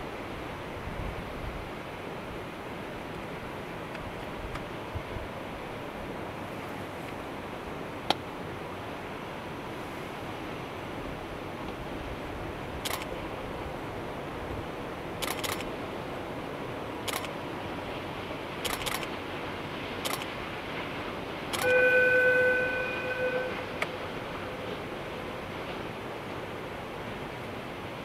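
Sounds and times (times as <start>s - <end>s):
camera shutters clicking: 15.2s - 15.7s, 18.6s - 19.1s
train horn blast: 21.5s - 24.8s.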